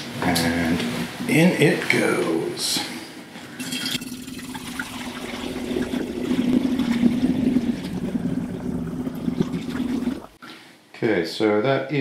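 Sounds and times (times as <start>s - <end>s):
juice pouring into glass bottle: 3.6s - 10.4s.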